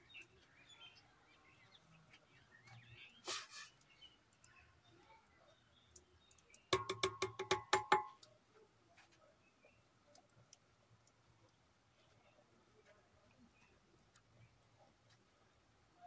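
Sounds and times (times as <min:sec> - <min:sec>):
wooden spoon knocking on metal pot: 0:06.7 - 0:08.3.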